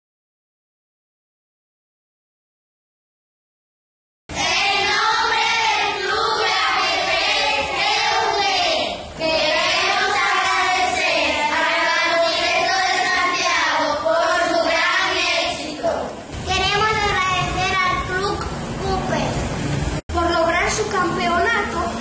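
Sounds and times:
children chanting in unison: 4.3s - 16.2s.

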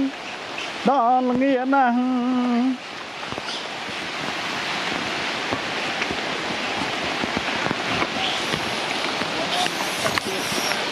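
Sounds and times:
heavy rain: 0.0s - 10.9s
close raindrop hits: 3.1s - 10.9s.

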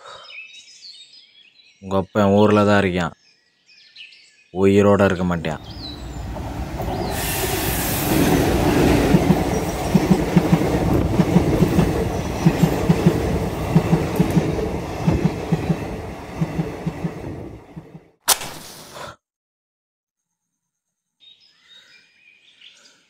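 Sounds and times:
train rumbling: 5.5s - 18.1s
train wheels clacking over rail joints: 5.6s - 18.0s.

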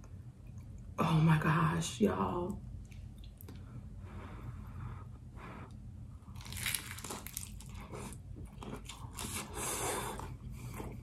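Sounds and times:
crunchy chewing: 6.2s - 11.0s.

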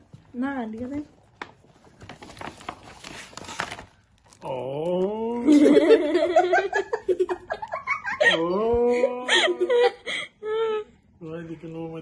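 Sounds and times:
paper gift bag rustling: 0.8s - 4.7s
person laughing: 5.3s - 10.6s.

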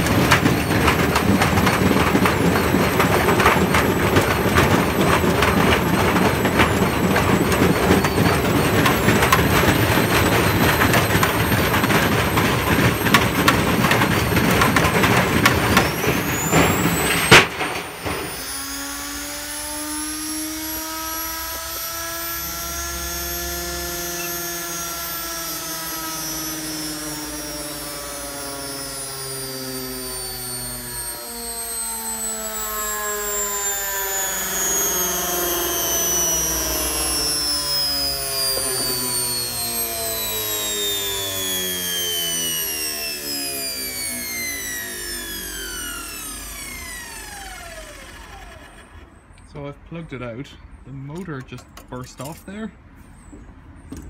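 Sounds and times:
dryer drum rattling clatter: 0.0s - 18.5s
motor whine: 0.0s - 49.5s
loud bang: 14.4s - 18.7s.

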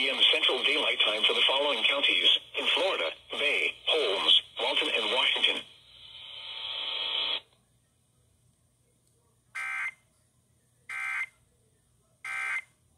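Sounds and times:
radio speaker hiss: 0.0s - 7.5s.

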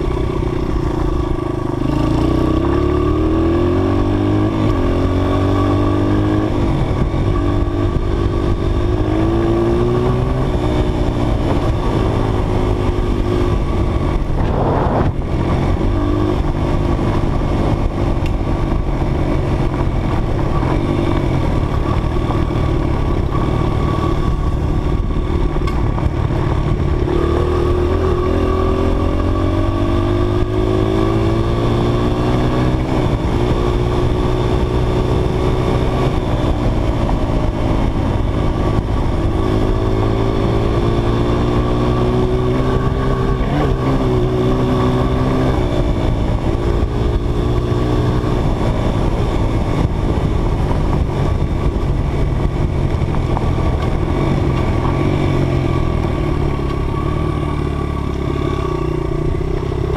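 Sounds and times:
dirt bike engine revving: 0.0s - 16.9s, 38.0s - 48.7s.

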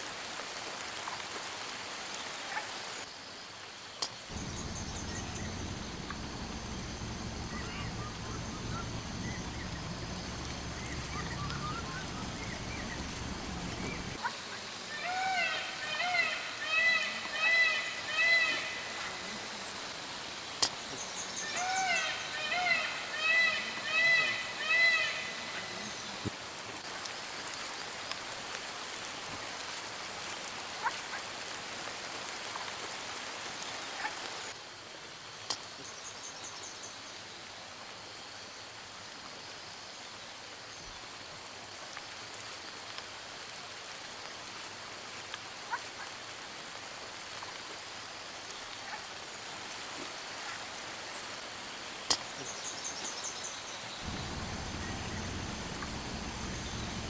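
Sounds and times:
steady hiss: 0.0s - 57.0s
low steady hum: 4.3s - 14.2s, 54.0s - 57.0s.

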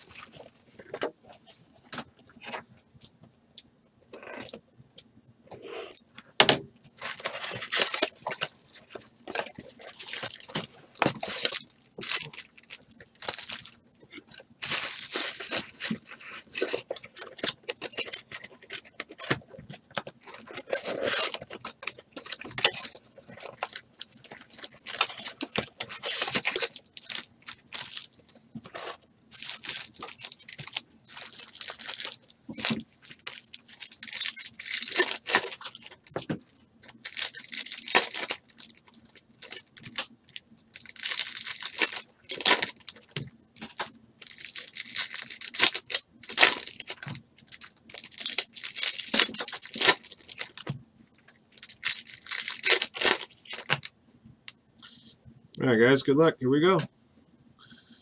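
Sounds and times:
foil wrappers rustling and tearing: 0.0s - 1.0s, 6.9s - 53.9s.

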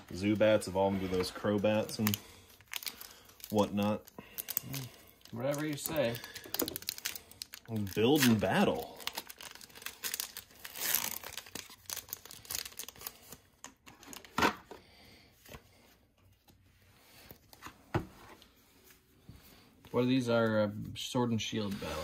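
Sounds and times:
foil pack tearing and crinkling: 1.8s - 13.3s.

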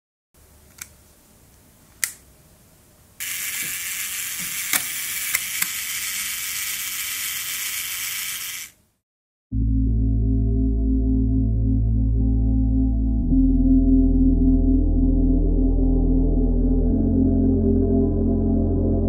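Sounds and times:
clockwork escapement buzzing: 3.2s - 8.8s
self-timer lever clicks: 3.2s - 8.8s.

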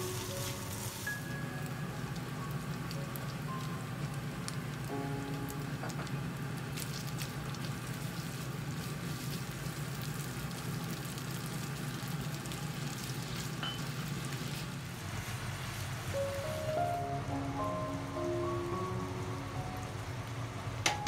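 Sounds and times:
meat sizzling in a wok: 0.0s - 16.6s.

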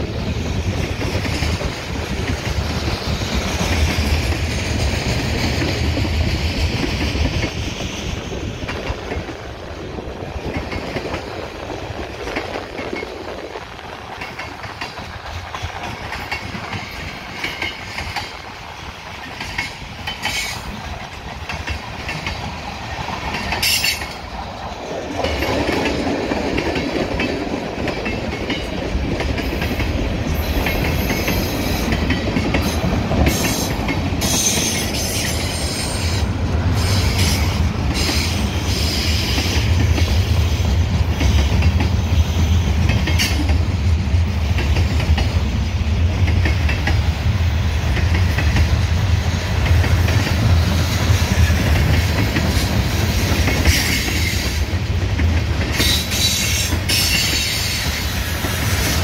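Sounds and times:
train wheels rolling on rails: 0.0s - 59.0s
wheels clacking over rail joints: 14.0s - 42.0s.

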